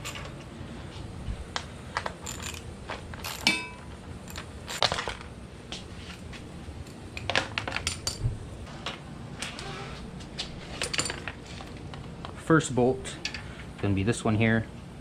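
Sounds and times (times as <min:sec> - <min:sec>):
hand tools clicking and knocking: 0:00.0 - 0:00.5, 0:01.6 - 0:05.8
ringing metal clink: 0:03.2 - 0:04.4.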